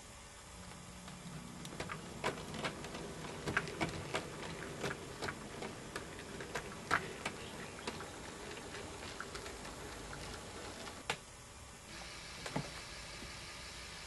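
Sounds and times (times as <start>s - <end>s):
faint low hum: 0.0s - 14.0s
model train wheels clicking: 1.1s - 11.0s.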